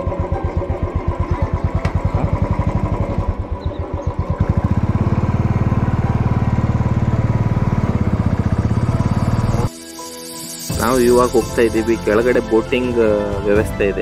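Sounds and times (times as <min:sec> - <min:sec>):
motorcycle engine thumping: 0:00.0 - 0:09.7.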